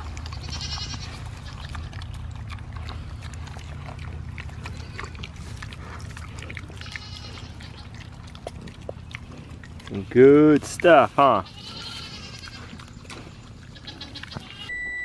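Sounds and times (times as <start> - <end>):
high-pitched animal calls: 0.0 - 3.6, 6.3 - 8.5, 13.6 - 14.8
low steady rumble: 0.0 - 15.0
piglets chewing and smacking: 0.0 - 15.0.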